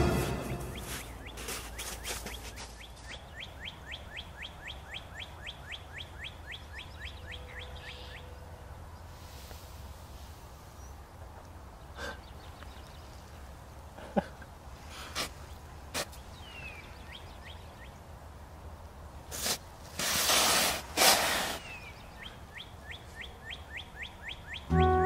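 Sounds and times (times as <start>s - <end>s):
bird chirping: 0.0s - 8.4s, 21.6s - 25.0s.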